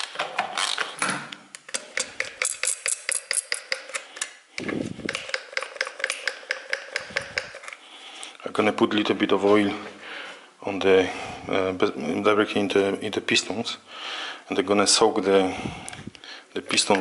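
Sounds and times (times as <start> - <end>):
socket ratchet clicking: 1.7 - 4.3, 5.0 - 7.7.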